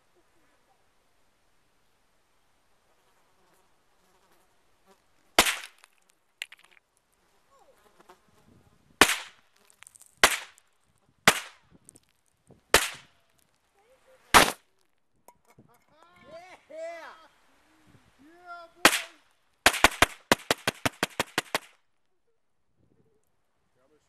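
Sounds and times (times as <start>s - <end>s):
rifle shots: 5.4s - 5.8s, 9.0s - 9.4s, 10.2s - 10.6s, 11.3s - 11.6s, 12.7s - 13.1s, 14.4s - 14.6s, 18.9s - 21.7s.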